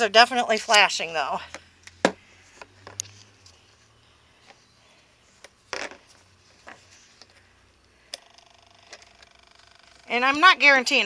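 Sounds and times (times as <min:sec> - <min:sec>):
rapidly pulsing electronic tone: 0:08.2 - 0:11.0.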